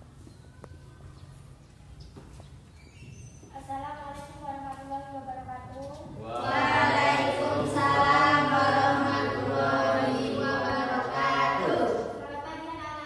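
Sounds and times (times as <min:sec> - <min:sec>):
choir singing: 0:06.2 - 0:12.2.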